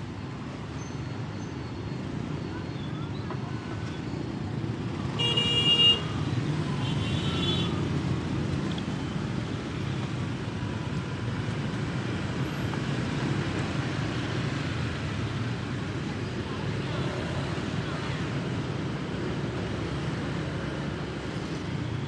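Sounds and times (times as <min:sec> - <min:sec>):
street traffic rumble: 0:00.0 - 0:22.0
vehicle horn honking: 0:05.2 - 0:06.1.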